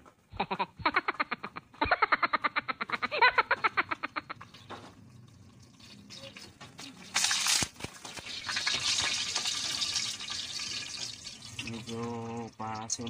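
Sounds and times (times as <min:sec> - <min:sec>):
oil spitting and spattering: 0:04.4 - 0:13.0
garlic sizzling in oil: 0:04.9 - 0:13.0.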